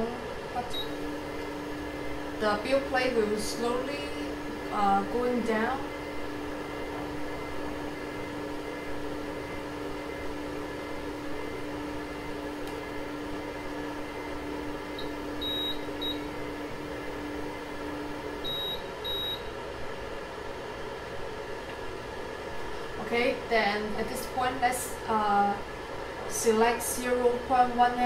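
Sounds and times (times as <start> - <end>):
stepper motor humming: 0.0 - 19.9
short high beeps: 15.4 - 16.2.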